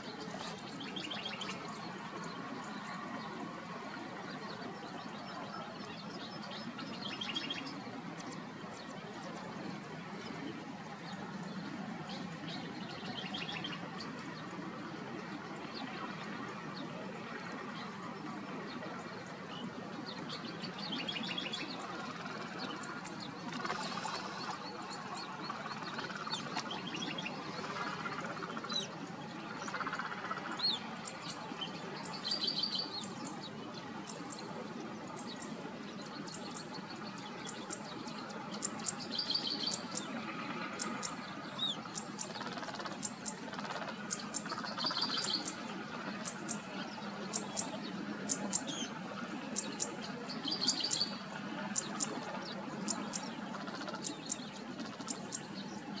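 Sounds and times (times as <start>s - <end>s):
small songbirds chirping: 0.0s - 56.0s
steady background hiss: 0.0s - 56.0s.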